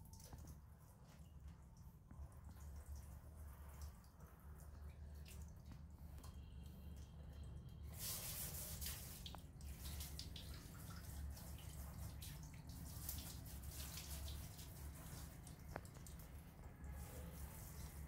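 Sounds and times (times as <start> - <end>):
low steady hum: 0.0 - 18.0
water splashing on tiles: 7.0 - 18.0.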